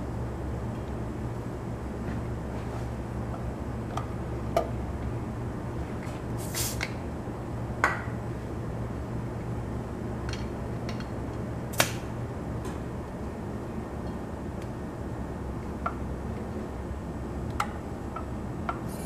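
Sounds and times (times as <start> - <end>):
fan humming: 0.0 - 19.0.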